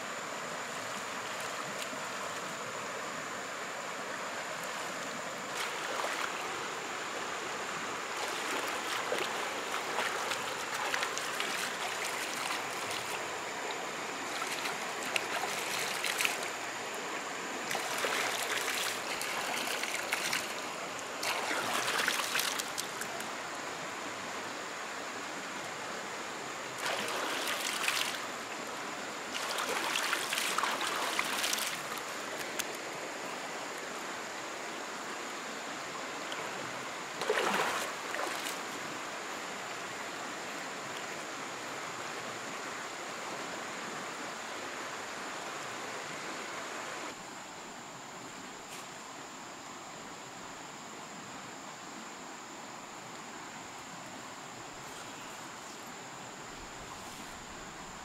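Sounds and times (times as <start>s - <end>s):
stream running water: 0.0s - 58.0s
water splashing: 5.5s - 6.6s, 8.1s - 16.6s, 17.7s - 23.3s, 26.8s - 28.3s, 29.3s - 32.8s, 37.2s - 38.8s.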